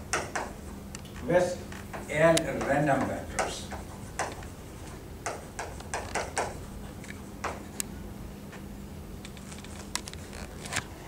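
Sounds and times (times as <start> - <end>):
steady faint hum: 0.0 - 11.0
chalk scraping on blackboard: 1.9 - 6.8.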